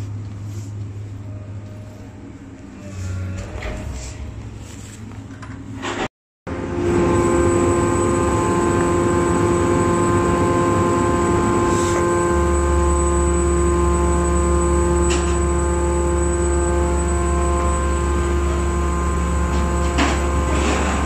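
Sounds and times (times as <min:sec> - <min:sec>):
hydraulic power unit whining: 0:05.5 - 0:21.0
deep hum: 0:06.5 - 0:21.0.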